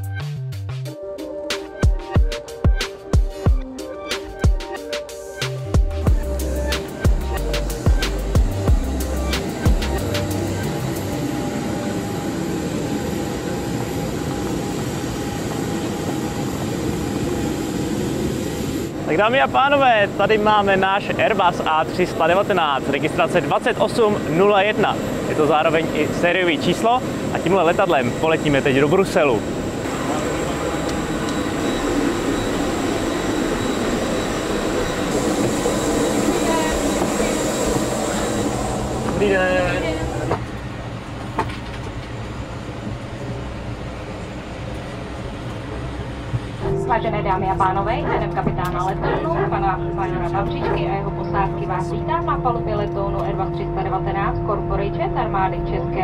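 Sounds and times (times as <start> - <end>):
high turbine whine: 1.0 - 56.0
jet aircraft noise: 1.0 - 56.0
faint high steady tone: 46.6 - 48.7.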